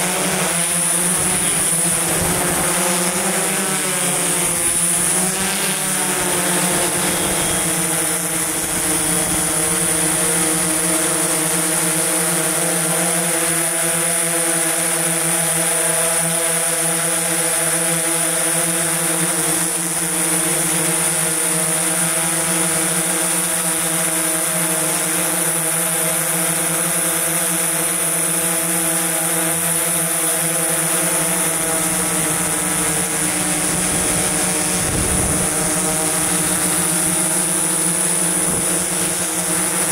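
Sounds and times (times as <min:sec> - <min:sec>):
thin high whine: 0:00.0 - 0:11.5
drone rotors humming: 0:00.0 - 0:39.9.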